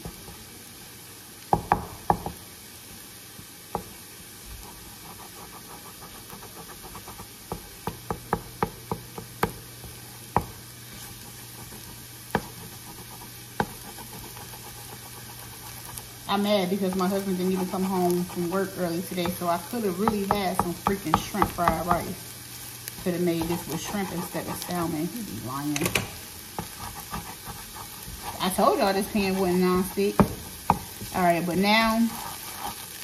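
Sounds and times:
faint sizzle: 0.0s - 33.0s
spatula knocking and scraping pan: 5.0s - 22.2s, 22.9s - 24.9s, 25.7s - 33.0s.

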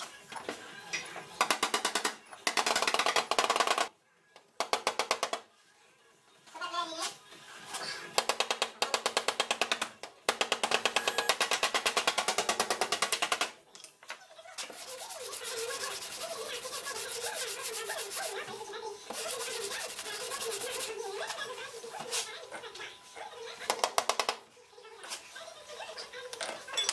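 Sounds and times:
hand sanding panel: 14.7s - 18.5s, 19.1s - 21.1s.

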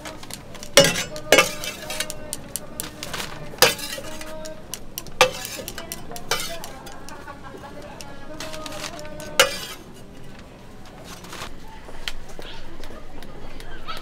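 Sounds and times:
metal tools clicking and scraping: 0.0s - 10.4s
sharp metallic knocks: 0.8s - 2.2s, 3.6s - 6.8s.

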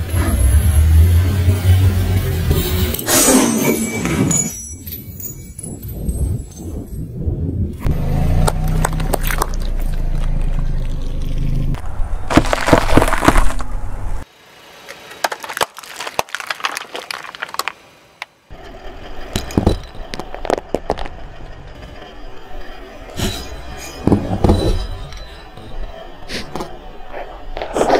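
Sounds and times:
car tyre rolling rumble: 7.2s - 23.2s
chalk snapping and crunching: 12.3s - 13.7s, 15.2s - 17.8s
plastic cups cracking under tyre: 12.3s - 13.7s, 15.0s - 18.3s, 19.6s - 21.1s.

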